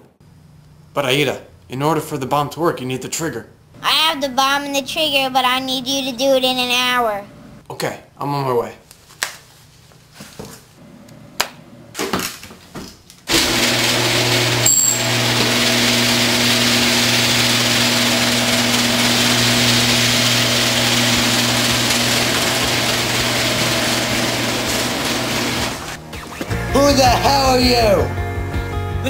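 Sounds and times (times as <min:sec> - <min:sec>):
garage door opener motor humming: 0:13.3 - 0:26.0.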